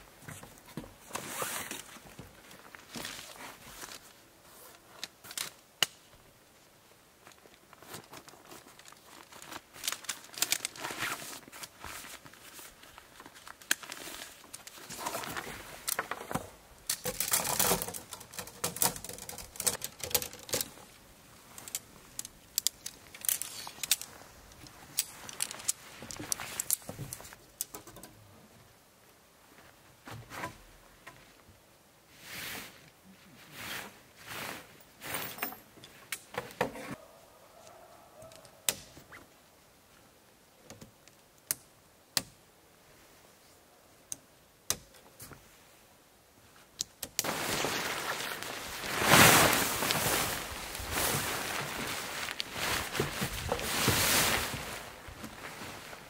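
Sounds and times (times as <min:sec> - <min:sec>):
fabric rustling and crinkling: 0:07.2 - 0:16.2, 0:17.0 - 0:27.4, 0:47.2 - 0:56.0.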